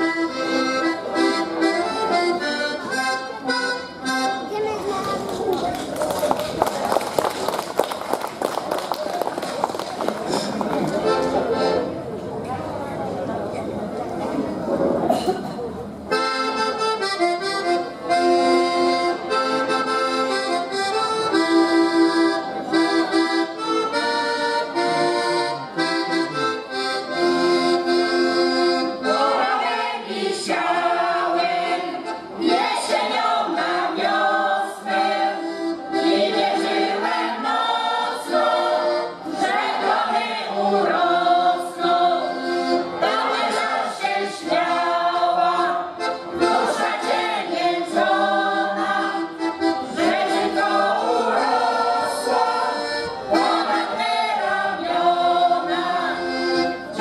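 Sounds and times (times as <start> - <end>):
accordion playing folk tune: 0.0 - 6.6, 9.9 - 12.3, 16.0 - 57.0
women's choir singing: 29.0 - 57.0.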